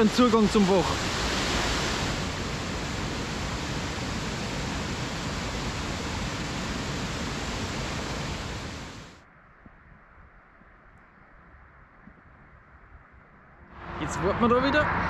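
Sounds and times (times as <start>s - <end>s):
waterfall rushing into pool: 0.0s - 9.2s.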